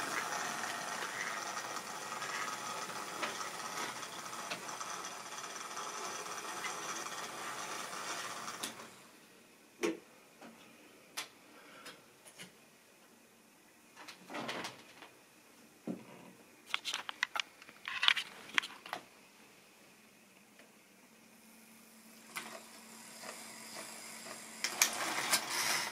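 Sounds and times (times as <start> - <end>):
model train motor whirring: 0.0 - 8.9, 22.3 - 25.9.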